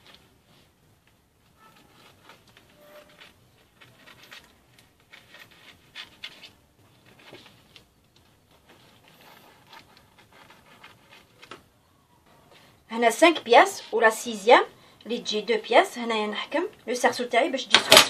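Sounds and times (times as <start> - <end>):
paper rustling: 0.0 - 11.7.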